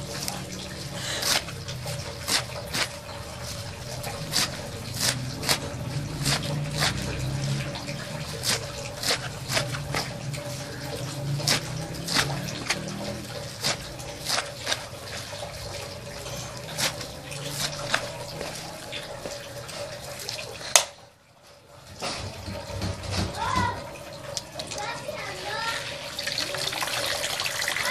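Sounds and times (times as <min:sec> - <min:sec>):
knife cutting leafy greens: 0:00.0 - 0:20.9.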